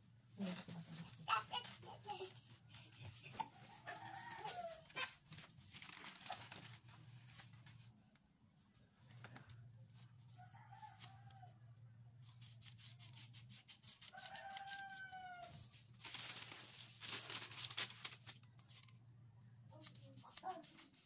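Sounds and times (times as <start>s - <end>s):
scissors cutting paper: 12.2s - 15.2s, 19.8s - 21.0s.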